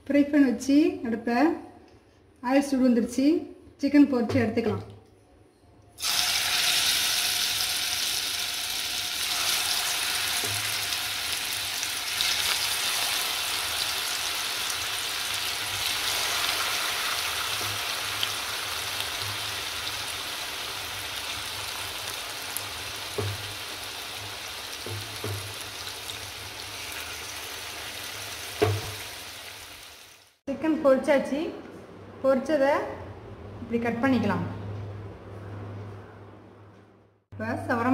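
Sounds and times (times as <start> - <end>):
chicken sizzling in hot oil: 6.0 - 30.4.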